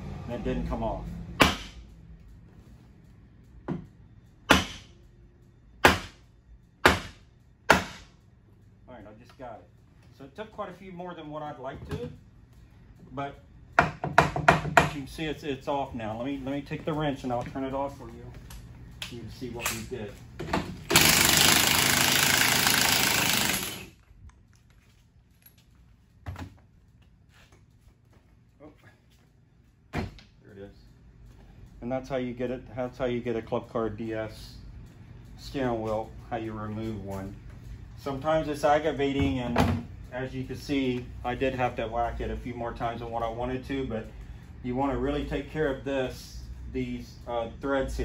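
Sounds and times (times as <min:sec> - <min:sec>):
impact wrench running: 0:20.7 - 0:24.0.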